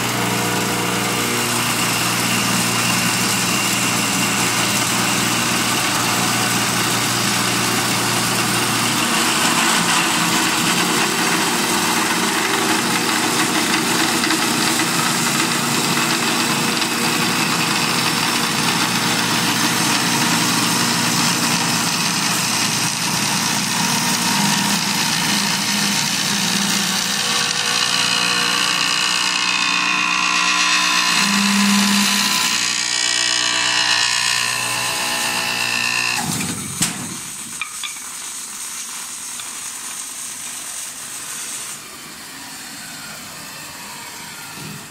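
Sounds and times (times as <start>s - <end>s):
lathe cutting wood: 0.0s - 36.4s, 41.0s - 44.9s.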